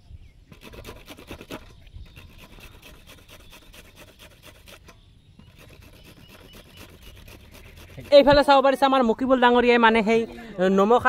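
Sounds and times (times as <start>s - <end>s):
mango rasping on a grater: 0.5s - 8.8s.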